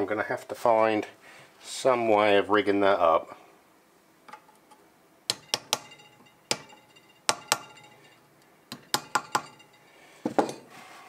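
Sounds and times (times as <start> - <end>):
metallic taps on copper: 5.3 - 8.0.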